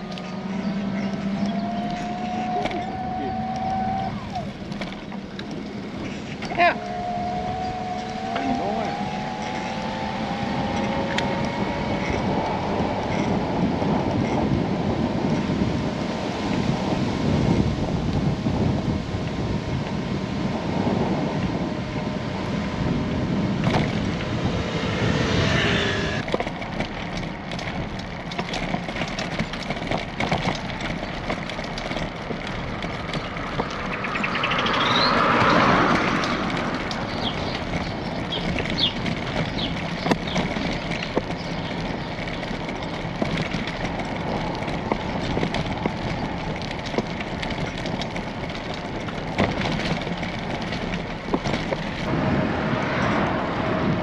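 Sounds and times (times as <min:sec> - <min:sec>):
rising pitched sound: 0:00.0 - 0:04.7, 0:06.6 - 0:12.7, 0:21.8 - 0:26.2
moving bicycle running noise: 0:00.0 - 0:54.0
wind buffeting microphone: 0:00.0 - 0:54.0.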